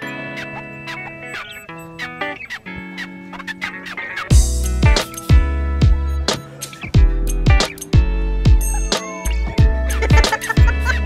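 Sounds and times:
electronic music with kick drum: 4.3 - 11.0.

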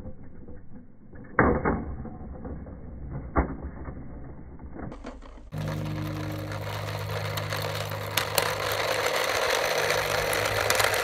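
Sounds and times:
toy car crunching over rubber mulch: 5.0 - 11.0.

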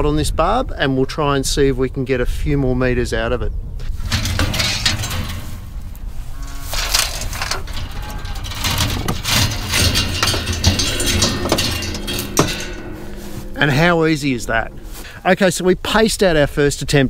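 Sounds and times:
barbed wire rattling and clinking: 4.0 - 15.2.

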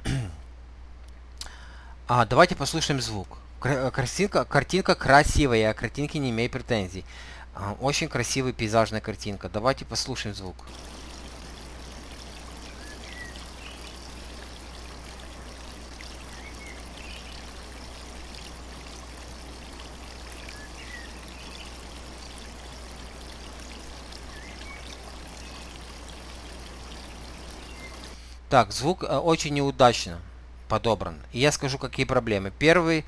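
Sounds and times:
waterfall rushing: 10.7 - 26.4
faint bird chirps: 11.6 - 18.5, 19.7 - 23.0, 24.0 - 28.1.

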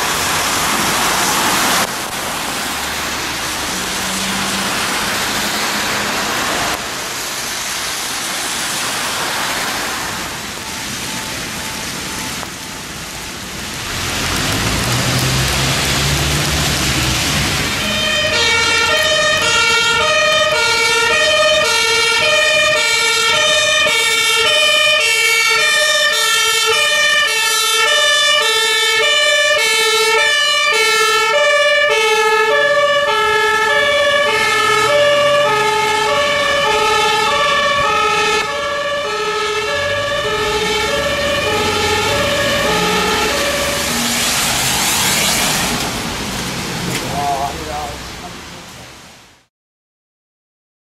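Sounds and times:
heavy rain: 0.0 - 49.5
two-tone fire engine siren: 8.3 - 46.2.

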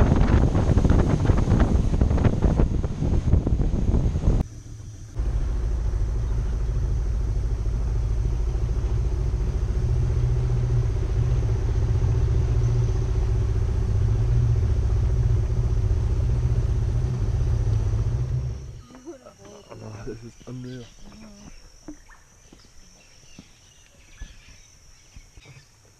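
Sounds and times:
outboard motor running: 0.0 - 20.2.

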